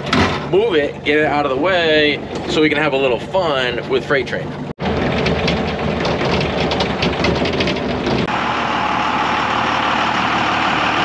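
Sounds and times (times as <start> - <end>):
vehicle engine running rough: 0.0 - 11.0.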